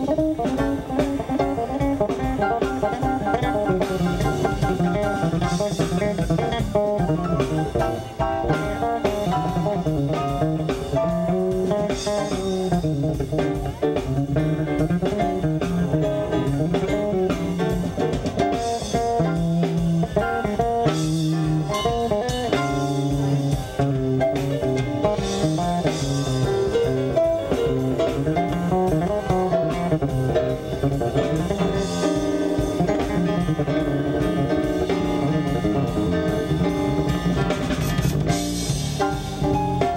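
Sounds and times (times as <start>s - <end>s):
drum kit and cymbals: 0.0s - 39.9s
electric bass line: 0.0s - 39.9s
live blues band playing: 0.0s - 39.9s.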